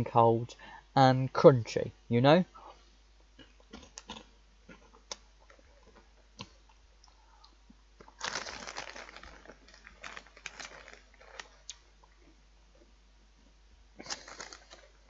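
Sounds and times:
crunchy snack chewing: 3.7 - 6.6, 7.4 - 12.3, 14.0 - 15.0.

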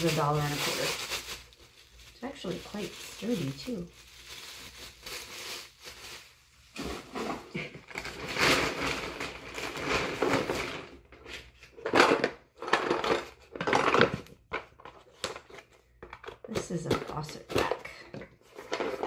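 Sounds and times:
plastic mailer bag rustling: 0.0 - 11.1.

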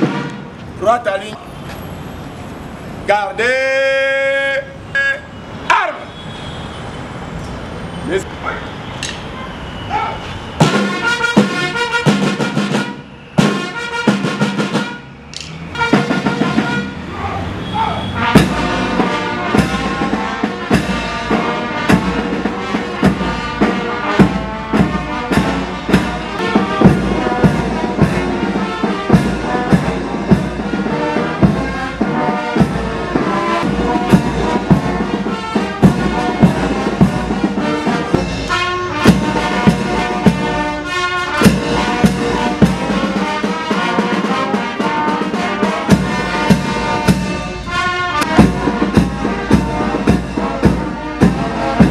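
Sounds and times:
brass band playing: 0.0 - 1.1, 10.6 - 51.9
steady drum beat: 10.6 - 15.1, 15.8 - 17.0, 18.2 - 51.9.

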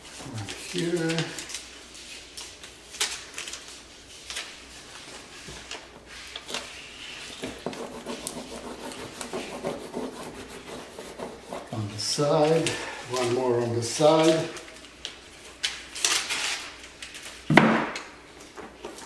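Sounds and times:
paper rustling and rubbing: 0.0 - 17.4
paper labels peeling: 0.3 - 5.0, 14.0 - 17.4.

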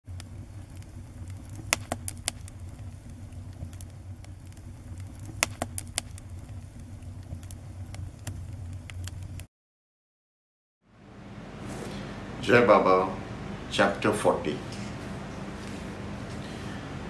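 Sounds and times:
fire crackling pops: 0.0 - 9.5
low rumble of flames: 0.0 - 9.5.

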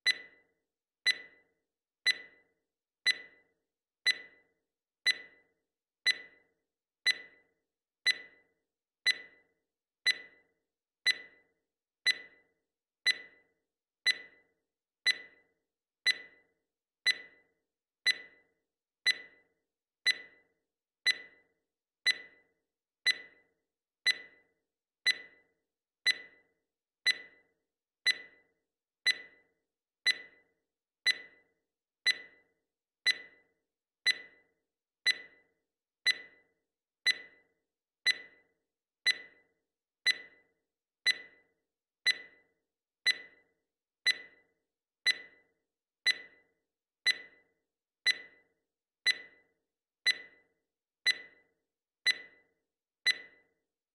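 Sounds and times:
timer beeping: 0.0 - 53.6.

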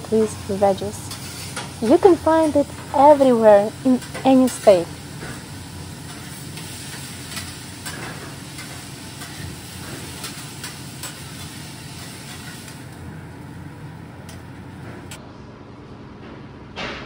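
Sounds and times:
food sizzling on a griddle: 0.0 - 13.0.

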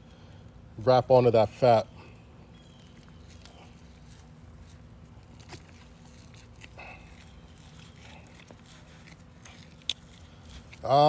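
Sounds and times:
steady low hum: 0.0 - 11.0
gloved hands rubbing meat: 2.7 - 11.0.

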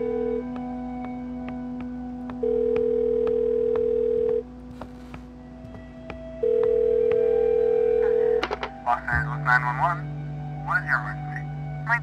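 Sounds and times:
telephone ringback tone: 2.4 - 4.4, 6.4 - 8.4.

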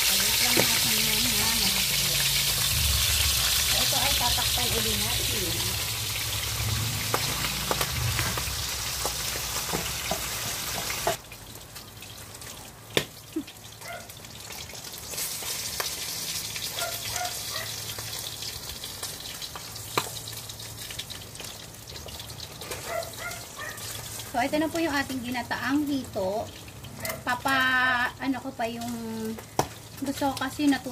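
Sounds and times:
sizzling hiss: 0.0 - 11.2.

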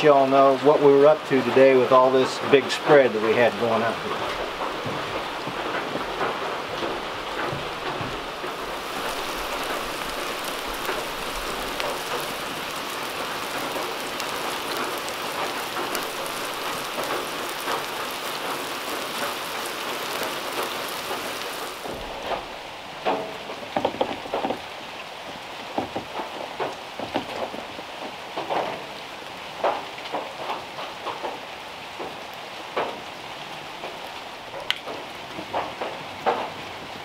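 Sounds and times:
knocks and rustles: 1.6 - 33.0, 33.8 - 37.0
burger patties sizzling in oil: 8.5 - 22.5.

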